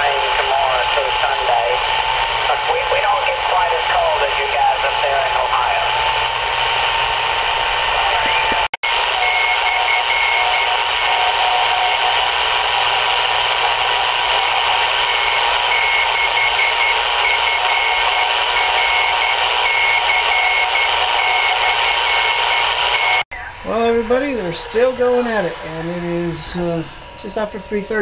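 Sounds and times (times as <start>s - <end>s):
radio static hissing: 0.0s - 28.0s
faint steady whistle: 9.2s - 12.1s
high tone cutting in and out: 23.3s - 28.0s.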